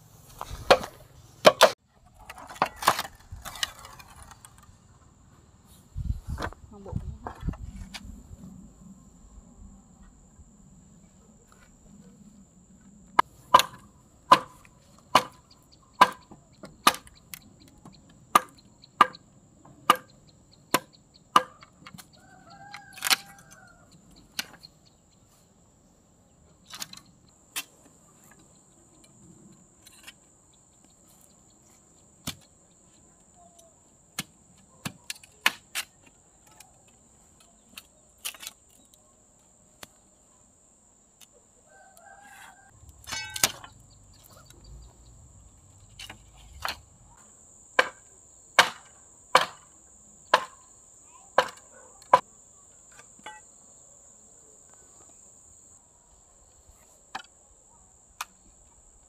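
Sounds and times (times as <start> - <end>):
sharp chopping strikes: 13.5 - 15.4, 16.0 - 16.2, 16.8 - 17.1, 47.8 - 49.7, 50.3 - 50.6, 51.4 - 52.2.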